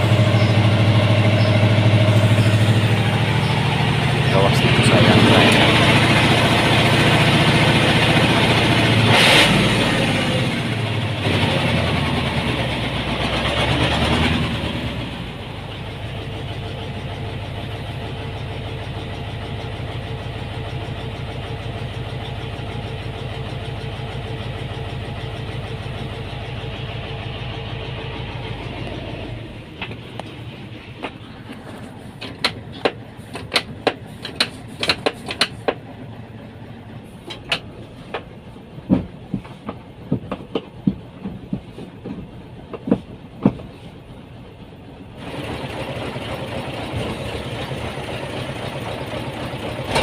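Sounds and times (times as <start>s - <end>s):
diesel truck engine idling: 0.0s - 50.0s
sharp clack: 32.2s - 35.8s.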